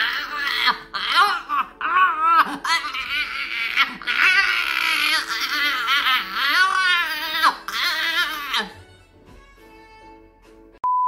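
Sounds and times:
dog whining: 0.0s - 8.8s
light background music: 0.0s - 10.8s.

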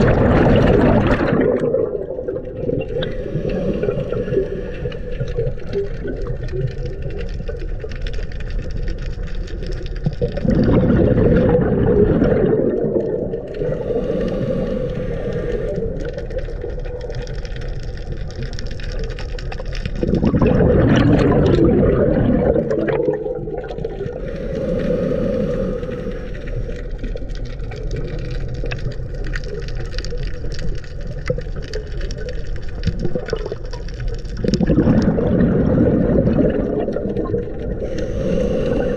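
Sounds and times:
bubbling exhaled air: 0.0s - 38.9s
underwater regulator breathing rush: 2.9s - 5.8s, 13.3s - 16.6s, 24.0s - 27.4s, 34.8s - 38.9s.

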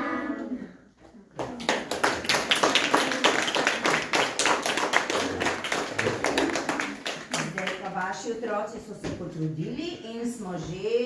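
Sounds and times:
small audience applauding: 1.3s - 8.0s.

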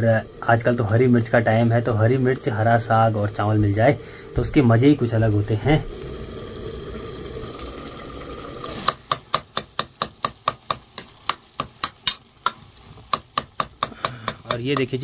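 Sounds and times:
steady hiss: 0.0s - 15.0s
knife chopping taps: 9.1s - 15.0s.

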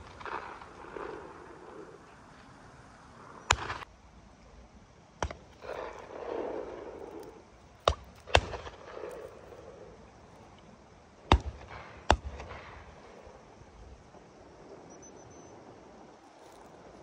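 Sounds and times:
shotgun shots: 0.0s - 1.9s, 3.4s - 3.9s, 5.2s - 7.0s, 7.8s - 9.5s, 11.2s - 13.2s.

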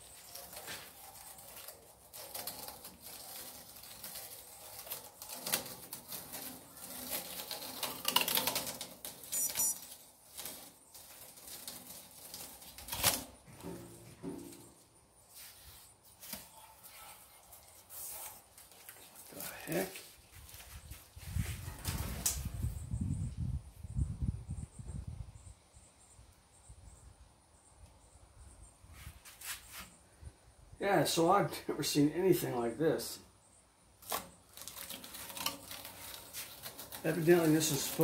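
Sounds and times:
tape peeling off: 0.0s - 13.9s, 15.3s - 22.5s, 34.0s - 38.0s.

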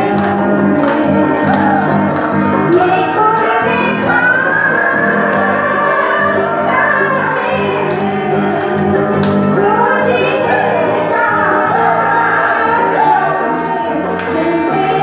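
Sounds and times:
live instrumental accompaniment: 0.0s - 15.0s
woman singing into microphone: 0.0s - 15.0s.

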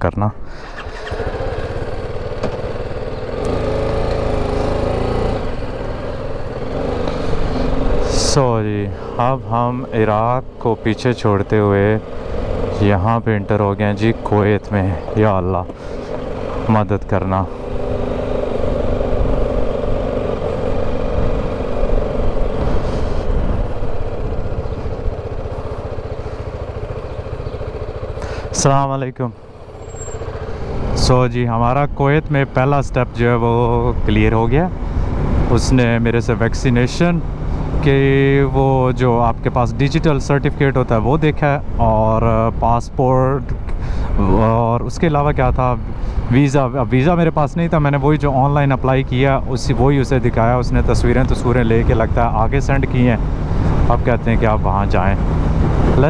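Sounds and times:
motorcycle engine riding off: 0.5s - 28.7s, 29.3s - 31.3s, 47.6s - 56.0s.

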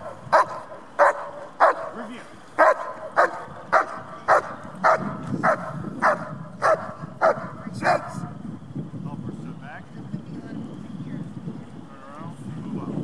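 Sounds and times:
dog barking sharply: 0.3s - 2.0s, 2.6s - 8.2s.

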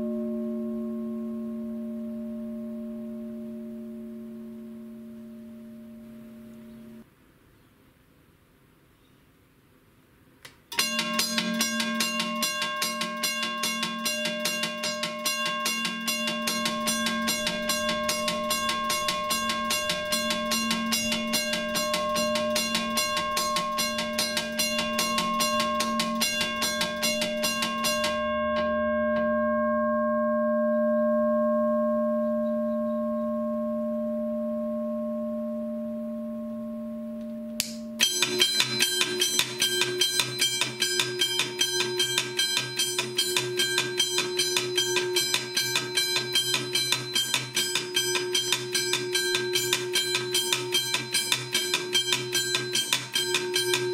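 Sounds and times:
different-pitched bell ringing: 0.0s - 7.0s, 10.7s - 53.9s
click: 10.4s - 10.6s
crossing bell ringing: 10.7s - 37.2s, 37.8s - 53.9s.

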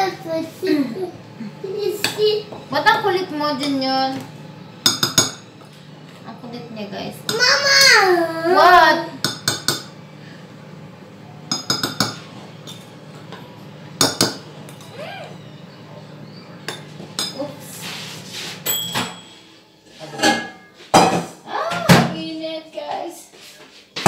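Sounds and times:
dishes and utensils clinking: 4.8s - 5.8s, 11.5s - 15.0s, 16.6s - 17.5s, 18.5s - 22.1s.

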